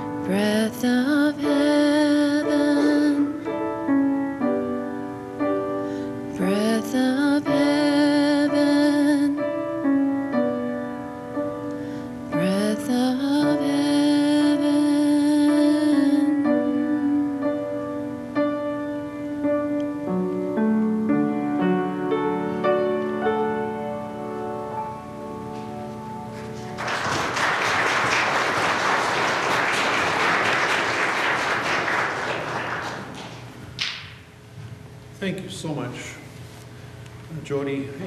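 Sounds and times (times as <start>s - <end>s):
piano playing slow chords: 0.0s - 36.2s
congregation applauding: 26.4s - 34.1s.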